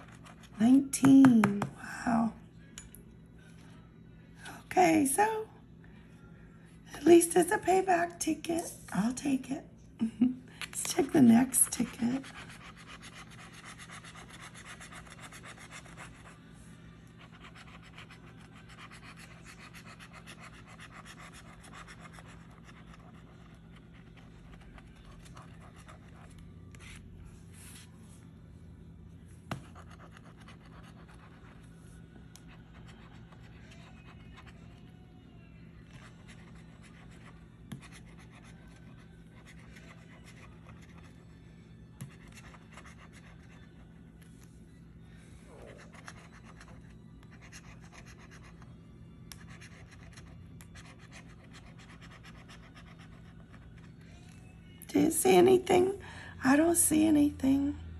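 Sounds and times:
scratching a ticket: 10.7s - 27.0s, 35.8s - 41.4s.

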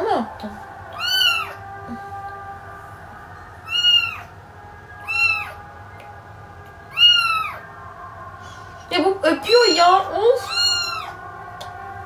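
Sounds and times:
kitten meowing: 1.0s - 1.6s, 3.7s - 4.3s, 5.0s - 5.6s, 6.9s - 7.6s, 9.4s - 11.2s.

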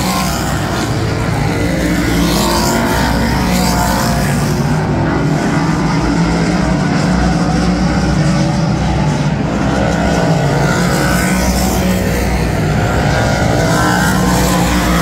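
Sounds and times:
race car engines accelerating: 0.0s - 15.0s.

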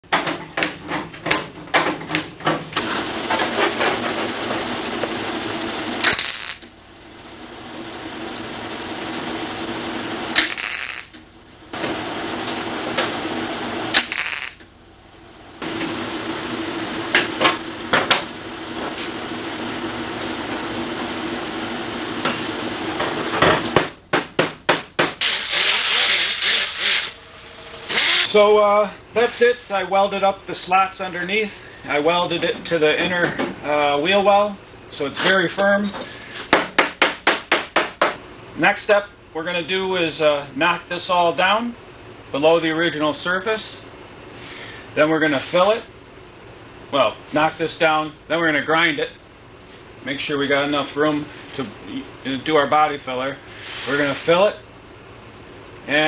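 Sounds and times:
welding crackling buzz: 2.8s - 14.9s, 25.2s - 28.5s.

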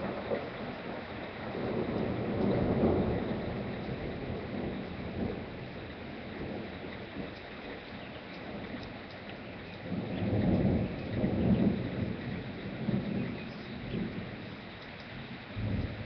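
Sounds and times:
steady rain falling: 0.0s - 16.0s
thunder rumble: 0.0s - 16.0s.

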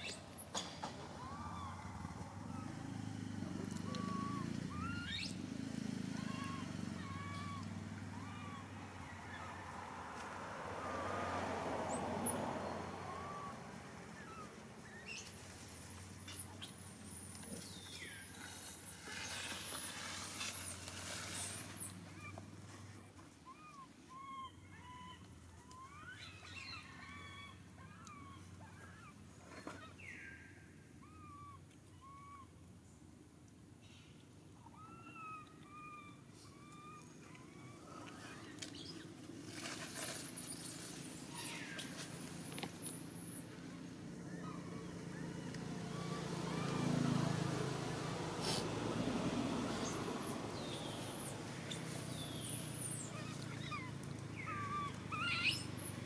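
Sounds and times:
baby macaque squeaking: 3.8s - 5.4s, 6.2s - 7.6s, 51.0s - 55.9s.

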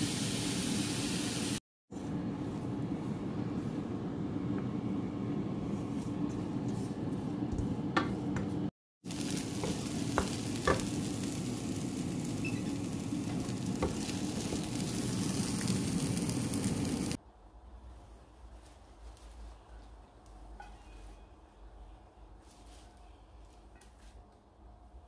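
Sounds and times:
food sizzling in a frying pan: 0.0s - 1.6s, 9.0s - 17.2s.

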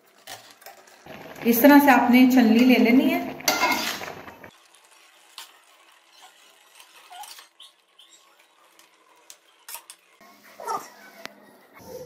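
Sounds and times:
strainer clinking against metal pot: 3.5s - 4.1s.

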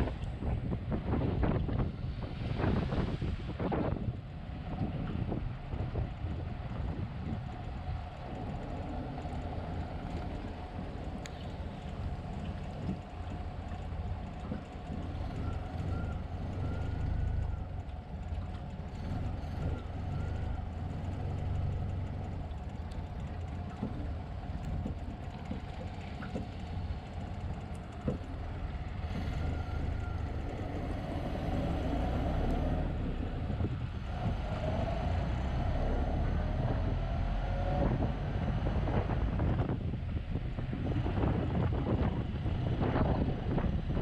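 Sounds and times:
road and wind noise: 0.0s - 44.0s
truck engine rumbling: 0.0s - 44.0s
small rattles and clicks: 7.2s - 30.6s.

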